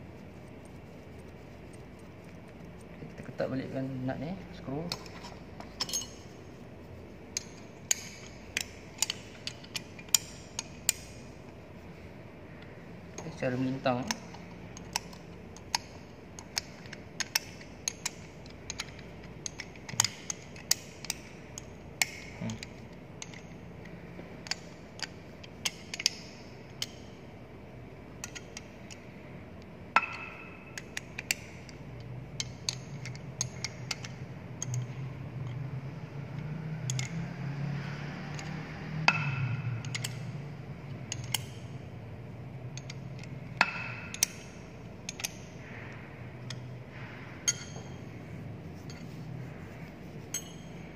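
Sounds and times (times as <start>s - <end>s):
spanner clinking on bolts: 3.8s - 6.3s, 7.3s - 11.3s, 13.1s - 27.2s, 28.1s - 29.0s, 29.9s - 41.8s, 42.6s - 46.8s, 47.4s - 48.2s, 48.8s - 49.2s, 50.2s - 50.9s.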